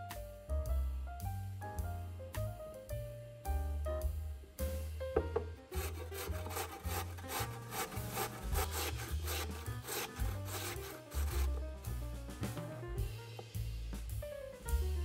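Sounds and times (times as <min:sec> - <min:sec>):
background music with bass: 0:00.0 - 0:15.0
potato grated on metal grater: 0:05.7 - 0:11.8.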